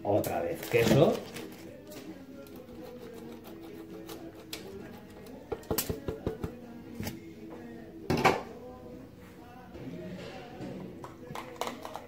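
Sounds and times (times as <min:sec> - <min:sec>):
cheese grating on metal grater: 0:02.4 - 0:05.7.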